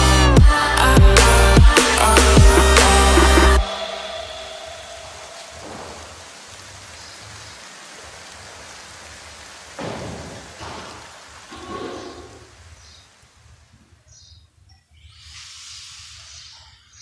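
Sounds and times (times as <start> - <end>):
low hum: 0.0 - 6.7
steady hiss: 0.0 - 17.0.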